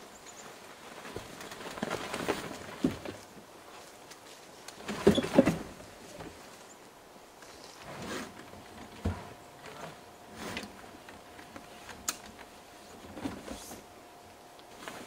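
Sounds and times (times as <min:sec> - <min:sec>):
fabric rustling and scraping: 0:07.4 - 0:13.9, 0:14.7 - 0:15.0.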